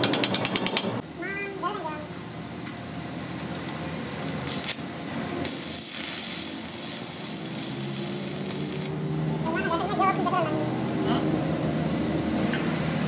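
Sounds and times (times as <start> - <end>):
arc welding crackling hiss: 4.4 - 9.0.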